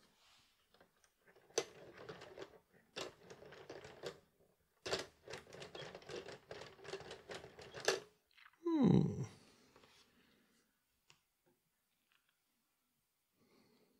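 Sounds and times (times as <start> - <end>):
plastic crank clicks: 4.8 - 8.1.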